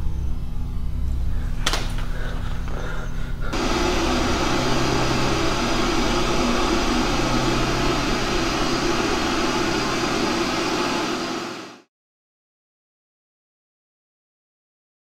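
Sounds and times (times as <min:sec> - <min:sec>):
low hum: 0:00.0 - 0:11.8
loud droning hiss: 0:00.9 - 0:11.9.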